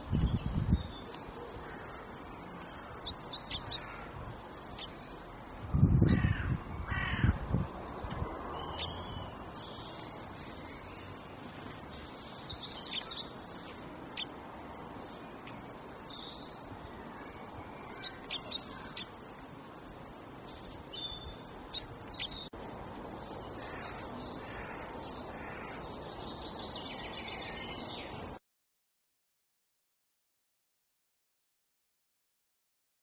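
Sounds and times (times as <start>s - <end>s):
small songbirds chirping: 0.0s - 28.4s
steady background hiss: 0.0s - 28.4s.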